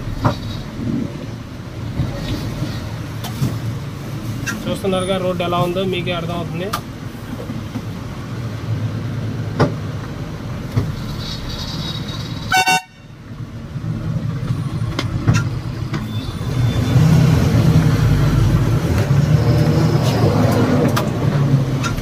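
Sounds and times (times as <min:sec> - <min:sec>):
truck engine and road rumble: 0:00.0 - 0:22.0
vehicle horn toot: 0:12.5 - 0:13.1.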